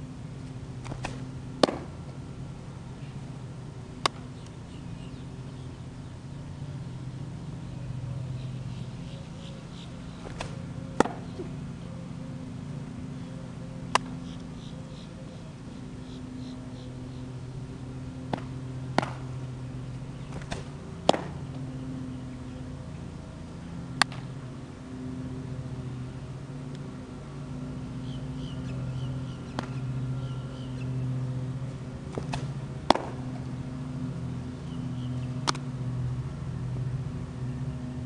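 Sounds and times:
steady low hum: 0.0 - 38.0
baseball popping into glove: 0.8 - 2.0, 4.0 - 4.3, 10.2 - 11.6, 18.3 - 19.3, 20.3 - 21.6, 24.0 - 24.3, 29.5 - 29.8, 32.1 - 33.3.

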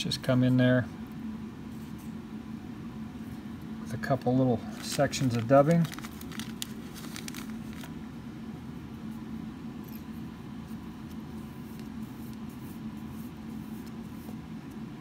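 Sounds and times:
low steady hum: 0.0 - 15.0
fingers rustling and ticking: 4.2 - 8.0.

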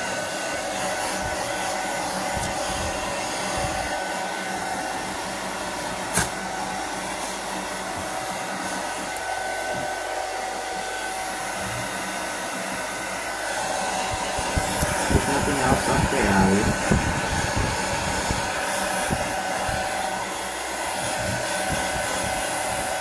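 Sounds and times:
hair dryer running: 0.0 - 23.0.

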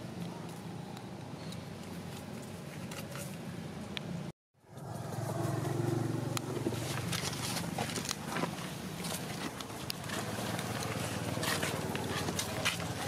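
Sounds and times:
vehicle engine running: 4.6 - 13.0.

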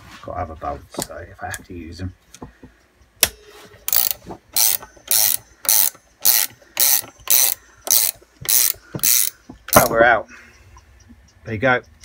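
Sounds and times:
ratchet spanner clicking: 3.9 - 10.0.

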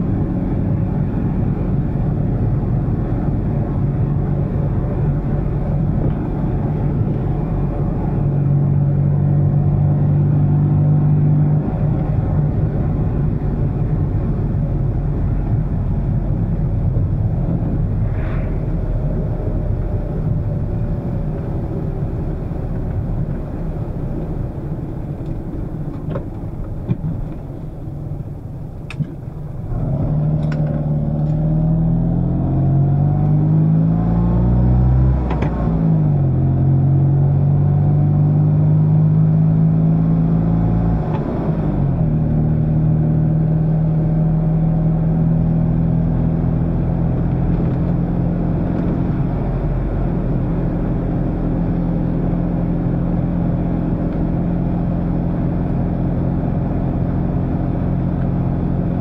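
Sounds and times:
car engine droning: 0.0 - 59.0.

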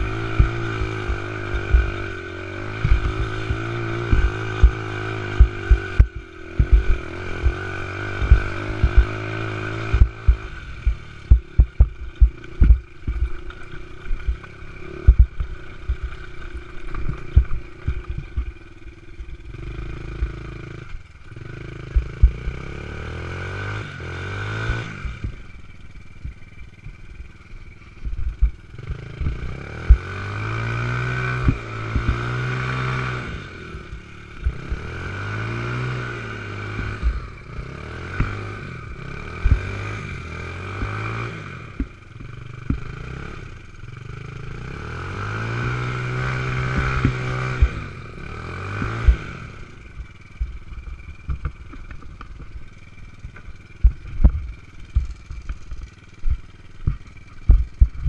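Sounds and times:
knocks and clatters of quad body: 0.0 - 18.6, 22.0 - 22.6, 28.0 - 30.4, 31.2 - 32.8, 36.5 - 43.1, 46.5 - 47.9, 50.1 - 58.0
small engine revving: 0.0 - 58.0.

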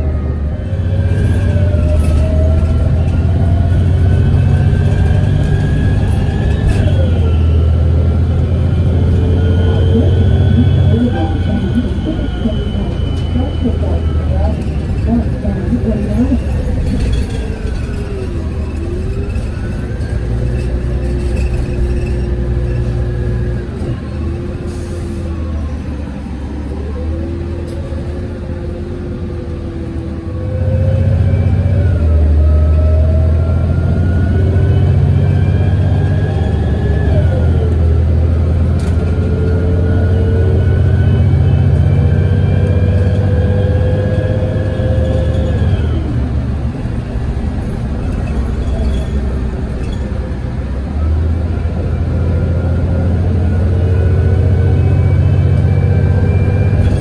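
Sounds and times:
bus engine and transmission whine: 0.0 - 57.0.

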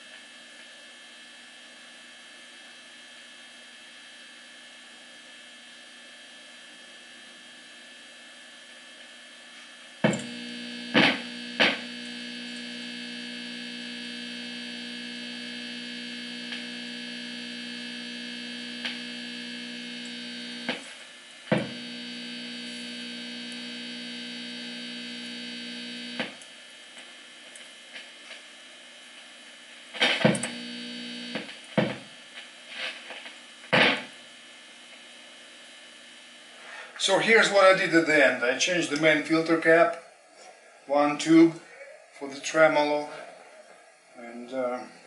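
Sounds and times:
guitar amp buzzing hum: 0.0 - 40.0
amp switching pops: 10.0 - 12.8, 16.2 - 17.0, 18.6 - 20.8, 21.5 - 22.1, 26.0 - 26.4, 30.0 - 32.1, 33.7 - 34.2.

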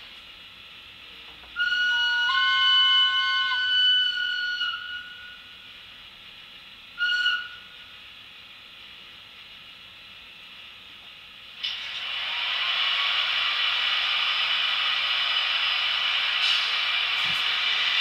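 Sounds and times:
model locomotive horn: 1.6 - 5.5, 7.0 - 7.8.

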